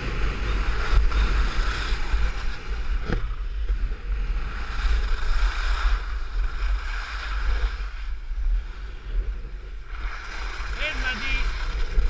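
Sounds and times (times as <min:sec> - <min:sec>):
wind buffeting microphone: 0:00.0 - 0:12.0
skis hissing on snow: 0:10.0 - 0:12.0.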